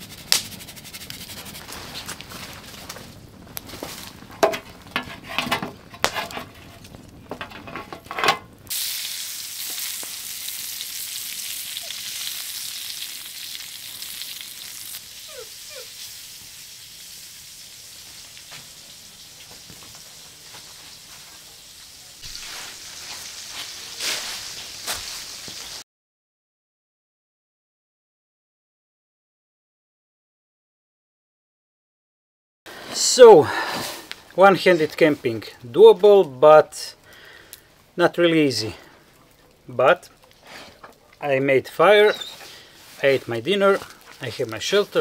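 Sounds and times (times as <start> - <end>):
meat sizzling: 0.0 - 4.9, 8.6 - 25.8, 38.6 - 45.0
sharp snaps and knocks: 0.2 - 1.2, 2.0 - 8.5.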